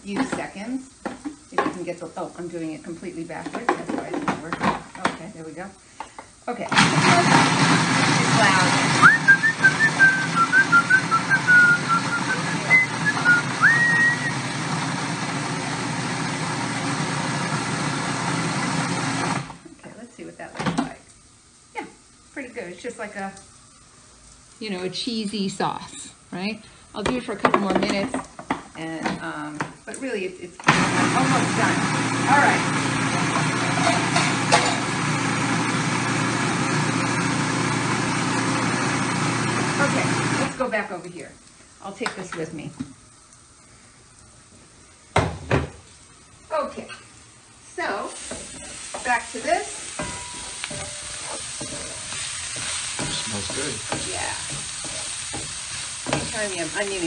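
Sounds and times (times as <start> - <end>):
food processor motor running: 6.7 - 19.6, 30.7 - 40.6, 52.6 - 57.0
person whistling a tune: 9.0 - 14.4.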